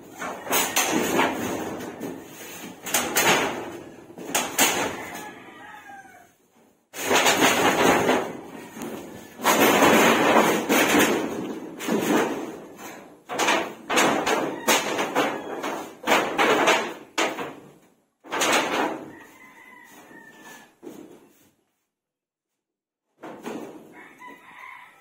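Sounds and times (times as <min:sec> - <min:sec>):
metal roofing sheets banging: 0:00.0 - 0:05.4, 0:06.9 - 0:19.4, 0:23.1 - 0:24.4.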